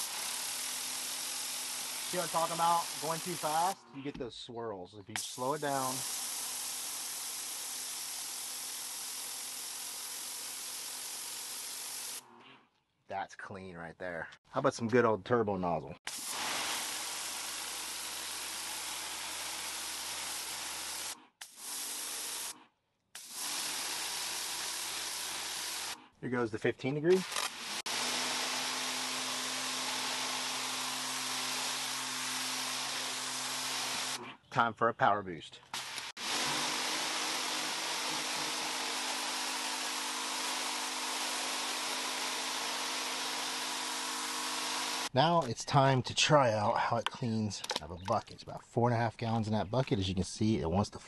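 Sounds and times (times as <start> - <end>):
pressure washer spraying concrete: 0.0 - 3.8, 5.2 - 12.2, 16.1 - 22.5, 23.2 - 26.0, 27.2 - 34.2, 35.8 - 45.1.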